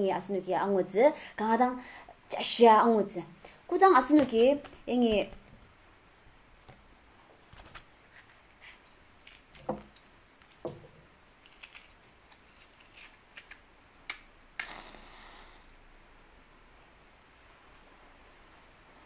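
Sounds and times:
match striking and hissing: 14.1 - 15.4.

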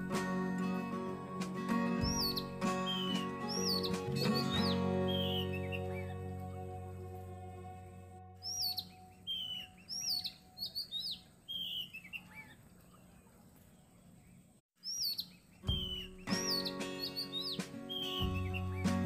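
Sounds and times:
background music: 0.0 - 10.6, 15.7 - 19.0
small birds chirping: 2.0 - 6.4, 8.4 - 19.0.

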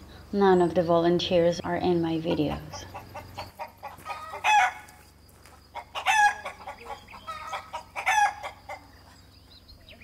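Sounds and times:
chickens calling: 1.6 - 10.0
soft chicken clucks: 2.2 - 10.0.

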